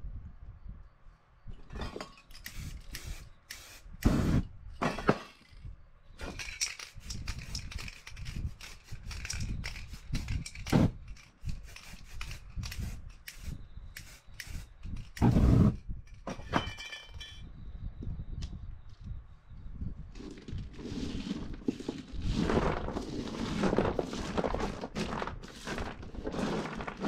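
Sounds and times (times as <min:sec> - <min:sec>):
knocks and handling noise: 0:04.8 - 0:13.2, 0:16.1 - 0:17.4
aerosol spray can hissing: 0:11.5 - 0:14.7
flame flaring: 0:11.6 - 0:15.8.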